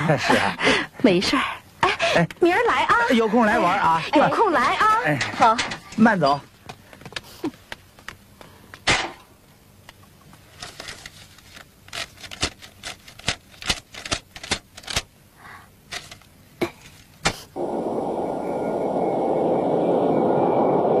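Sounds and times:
banknotes snapping: 0:11.5 - 0:15.1
steady rushing noise: 0:17.6 - 0:21.0.

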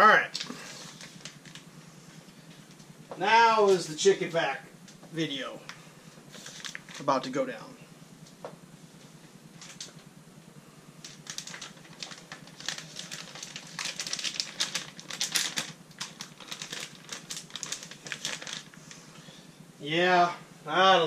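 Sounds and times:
plastic bag crinkling: 0:00.3 - 0:01.7, 0:06.3 - 0:07.1, 0:11.0 - 0:19.0.

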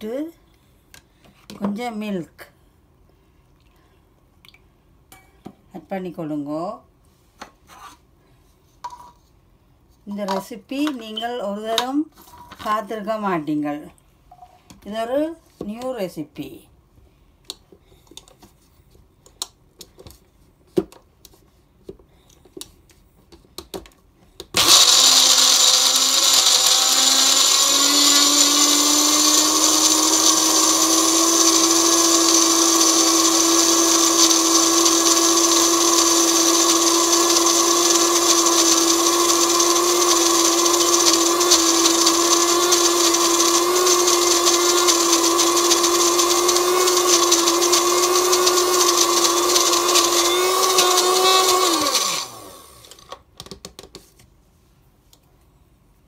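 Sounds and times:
blender motor running: 0:24.6 - 0:53.1.

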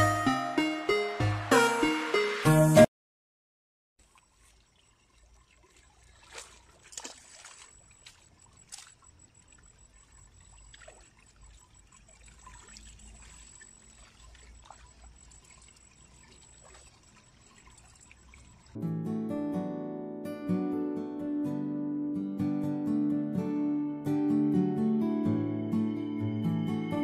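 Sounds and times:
fish splashing in shallow water: 0:04.0 - 0:18.8.

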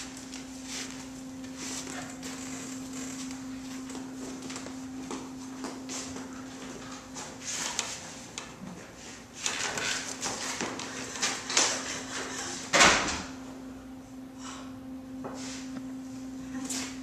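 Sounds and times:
footsteps in flip-flops: 0:00.0 - 0:08.1
steady low hum: 0:00.0 - 0:17.0.

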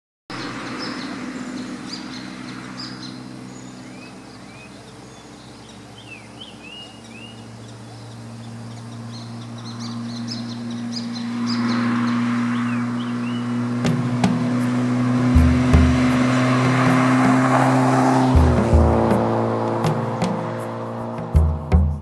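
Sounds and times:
small birds chirping: 0:00.3 - 0:14.1
car passing close: 0:00.3 - 0:22.0
steady hum of traffic: 0:00.3 - 0:22.0.

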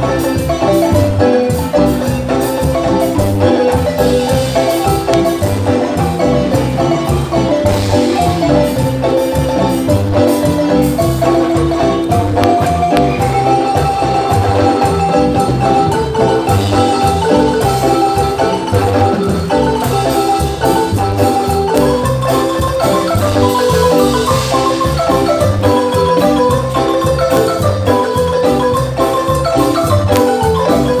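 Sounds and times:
marimba dance music: 0:00.0 - 0:31.0.

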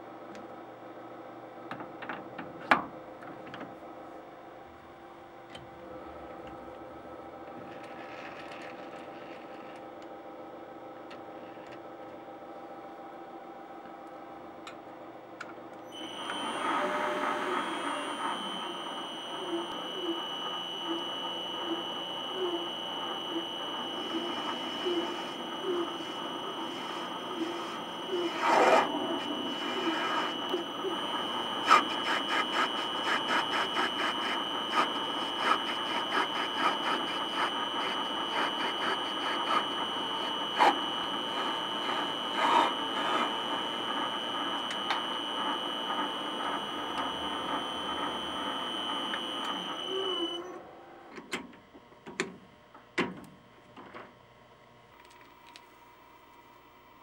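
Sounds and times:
metal lathe whining: 0:15.9 - 0:50.7.

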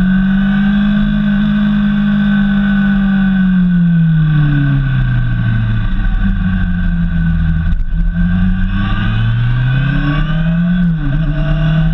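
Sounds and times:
motorcycle engine: 0:00.0 - 0:11.9
wind rumble on microphone: 0:04.0 - 0:11.9.

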